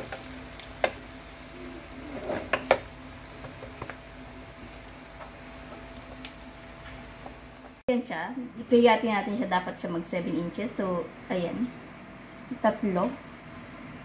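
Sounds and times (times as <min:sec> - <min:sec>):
metal spatula scraping pan: 0:01.9 - 0:02.8.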